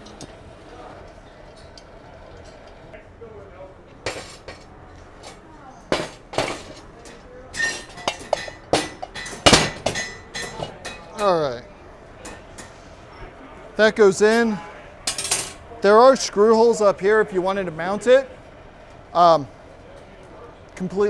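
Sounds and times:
metal clinking and clanking: 4.0s - 11.4s, 15.1s - 15.6s.

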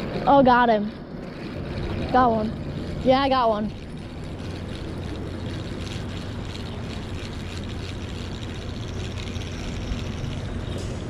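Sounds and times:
low engine drone: 0.0s - 11.0s
fishing reel ticking: 2.9s - 10.6s.

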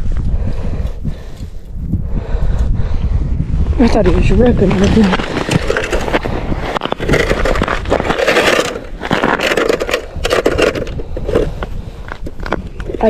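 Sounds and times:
crunching ice and slush: 4.5s - 13.0s.

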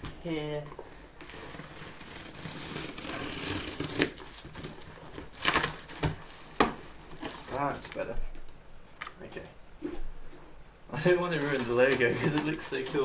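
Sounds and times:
cardboard rustling and crinkling: 0.0s - 8.5s, 9.8s - 13.0s
cardboard box tearing: 1.2s - 7.8s.

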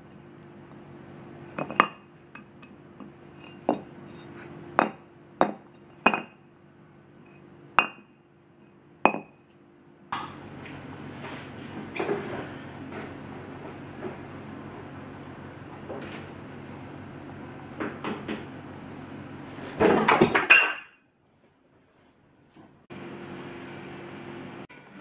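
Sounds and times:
stone knocking on concrete floor: 9.1s - 9.3s.

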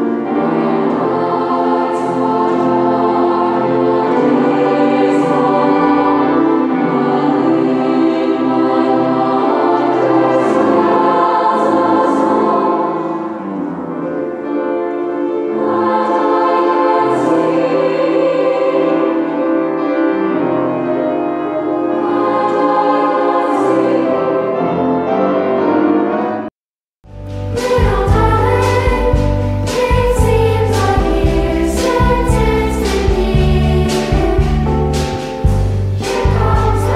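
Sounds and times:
choir singing sustained chords: 0.0s - 26.5s, 27.3s - 36.9s.

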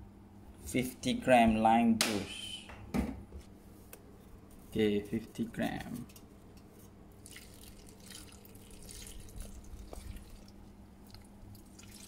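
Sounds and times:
liquid dripping into metal bowl: 7.2s - 12.0s.

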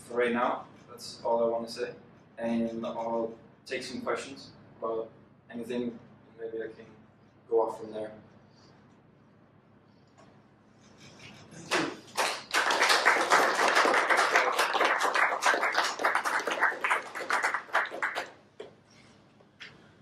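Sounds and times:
small audience clapping: 11.5s - 18.8s.

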